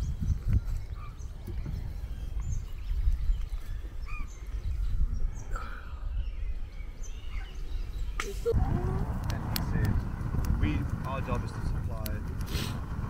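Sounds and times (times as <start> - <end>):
low outdoor rumble: 8.3 - 13.0.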